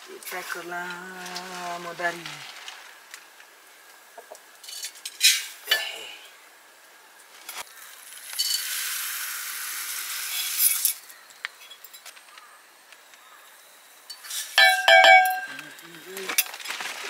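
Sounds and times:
rice pouring into metal pot: 0:07.7 - 0:11.0
steel bowl scraping and clinking: 0:08.2 - 0:08.9, 0:14.1 - 0:15.7.

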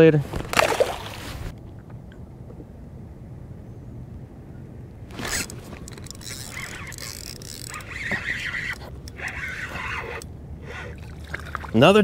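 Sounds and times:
fishing reel whirring: 0:05.1 - 0:11.0.

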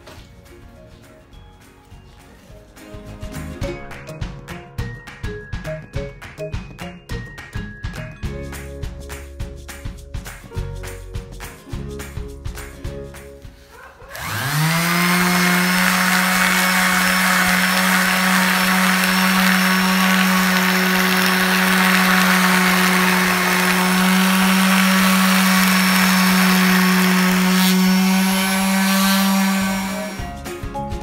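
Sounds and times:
electric sander motor whining: 0:14.1 - 0:30.2.

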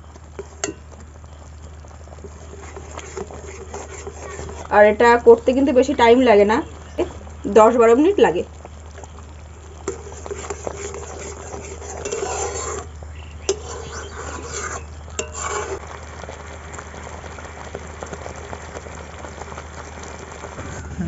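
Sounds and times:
steady low hum: 0:00.0 - 0:17.7
thick mixture bubbling and sizzling: 0:00.0 - 0:21.0
spatula scraping a wok: 0:02.2 - 0:04.8, 0:09.8 - 0:15.8.

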